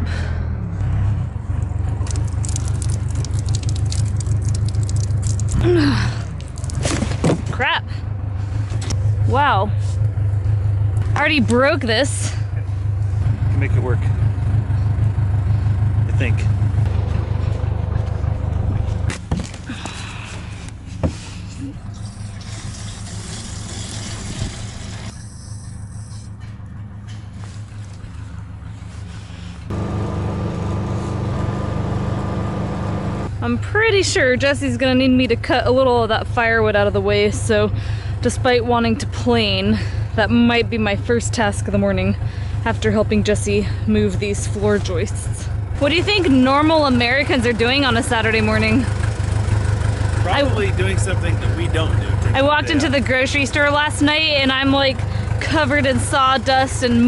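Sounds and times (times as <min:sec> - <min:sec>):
fast rattle of clicks: 0:02.0 - 0:05.6
small gas engine running: 0:07.9 - 0:33.8, 0:36.2 - 0:57.0.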